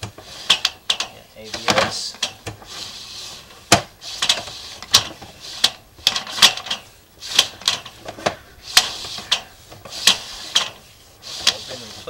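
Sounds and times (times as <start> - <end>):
cable reel clicking and clattering: 0.0 - 12.0.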